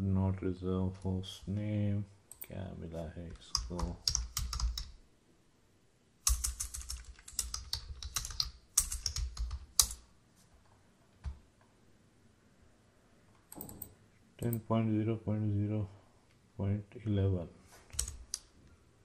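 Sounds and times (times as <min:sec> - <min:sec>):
typing on computer keyboard: 0:03.3 - 0:05.0, 0:06.2 - 0:10.0, 0:17.9 - 0:18.4.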